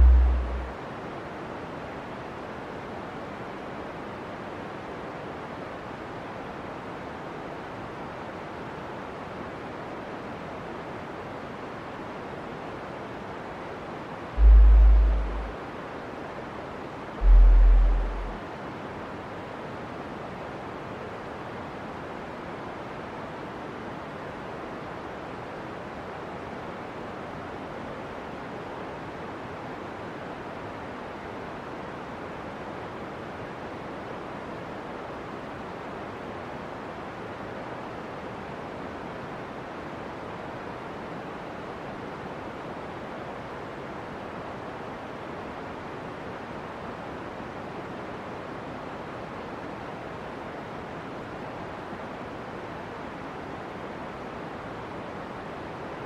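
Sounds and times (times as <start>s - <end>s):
steady rushing noise: 0.0s - 0.8s, 14.4s - 15.6s, 17.2s - 18.4s.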